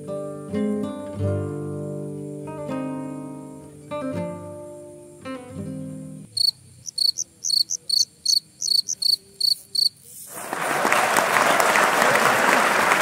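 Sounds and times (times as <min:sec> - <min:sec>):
acoustic guitar notes: 0:00.0 - 0:06.3
cricket chirping: 0:06.3 - 0:10.2
applause: 0:10.3 - 0:13.0.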